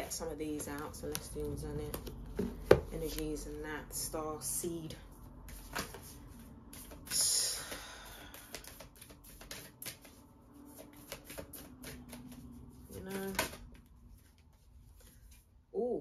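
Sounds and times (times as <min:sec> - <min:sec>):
cards being shuffled: 0:05.5 - 0:15.4.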